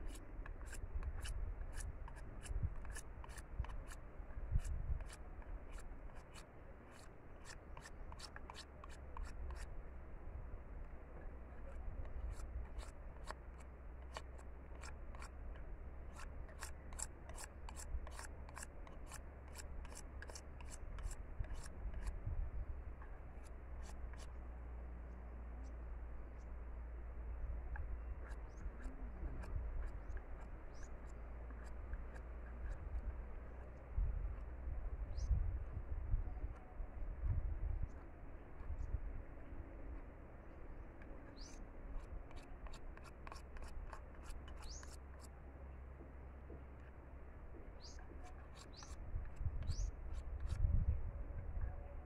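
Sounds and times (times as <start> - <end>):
knife scraping bamboo stick: 0.0 - 9.7, 11.4 - 22.2, 23.4 - 24.4, 27.7 - 34.5, 40.9 - 45.3, 47.8 - 50.8.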